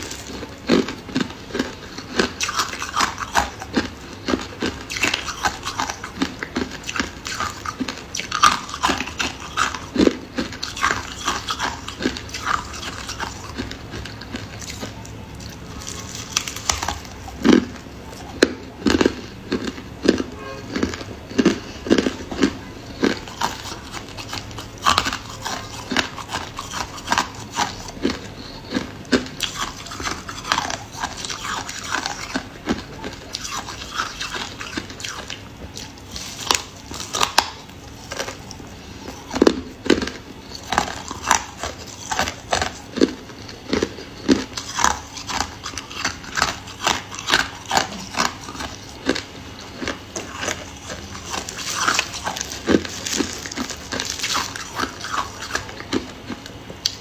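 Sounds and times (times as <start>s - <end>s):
frost being chewed crunching: 0.0s - 57.0s.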